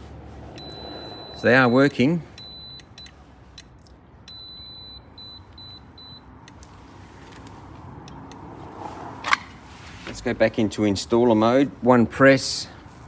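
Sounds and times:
safety beam alignment beeps: 0.6s - 3.2s, 4.3s - 6.3s.

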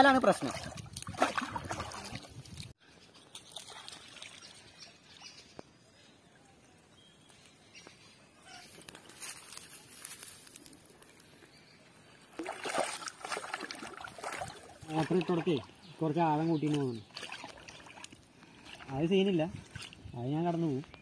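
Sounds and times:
rural outdoor ambience: 0.0s - 21.0s
paddle splashing in water: 0.3s - 2.6s, 12.3s - 15.7s, 16.7s - 18.9s.

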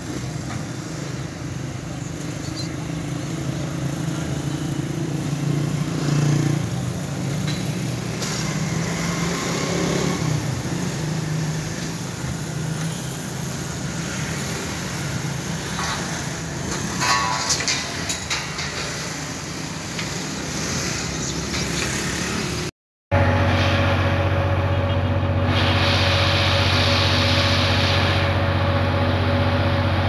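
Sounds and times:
outdoor noise: 0.0s - 30.0s
engine humming: 15.2s - 30.0s.

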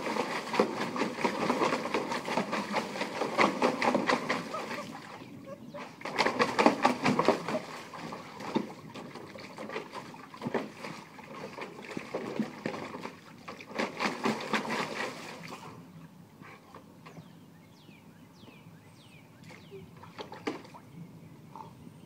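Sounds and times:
dog splashing in water: 0.0s - 15.8s.

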